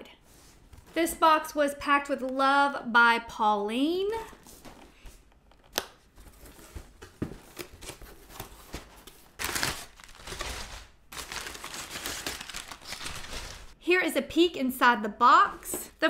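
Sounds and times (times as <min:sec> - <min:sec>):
paper packing crinkling: 0:06.1 - 0:13.8.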